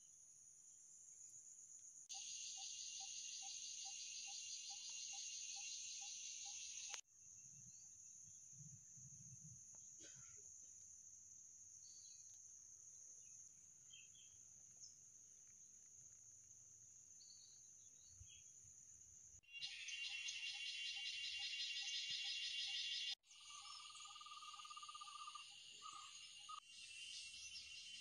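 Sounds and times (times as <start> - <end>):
insect chorus high drone: 0.0 - 28.0
pulsing insect call: 2.1 - 7.8, 19.4 - 28.0.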